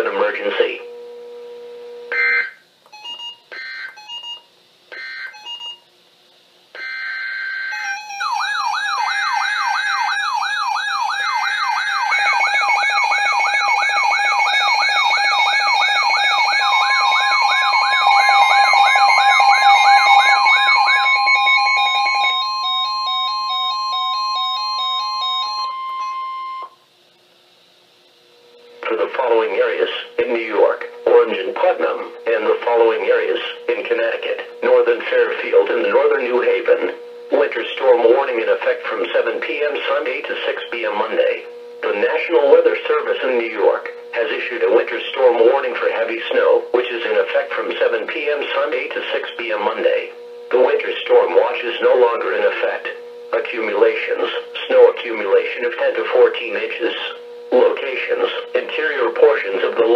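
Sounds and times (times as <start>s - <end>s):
long steady alarm tone: 0.0s - 5.9s, 6.7s - 26.9s, 28.4s - 47.2s, 47.9s - 59.9s
sweeping warble alarm: 0.5s - 5.9s, 6.8s - 26.8s
digital data chirps: 7.7s - 26.7s
electronic beeps: 10.5s - 26.8s.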